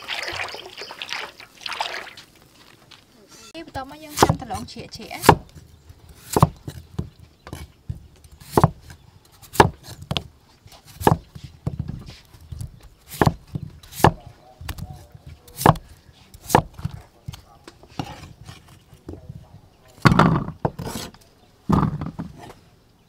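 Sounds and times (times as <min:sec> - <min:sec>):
cleaver chopping on wooden block: 0:04.1 - 0:12.0, 0:12.6 - 0:17.0.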